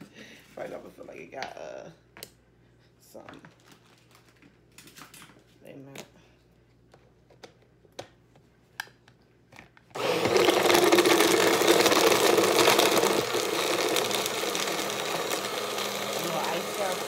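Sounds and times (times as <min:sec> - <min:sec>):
blender motor running: 0:10.0 - 0:17.0.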